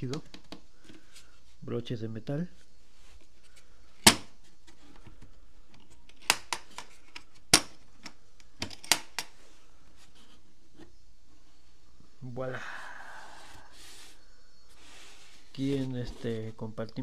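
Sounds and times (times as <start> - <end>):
case latches clicking open: 4.0 - 9.3.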